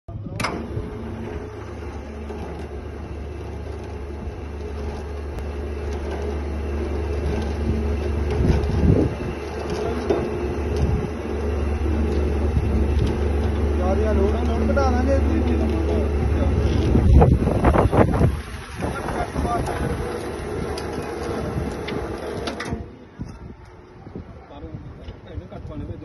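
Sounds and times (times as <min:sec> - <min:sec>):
machine humming: 0:00.1 - 0:23.2
sharp click: 0:00.3 - 0:00.8.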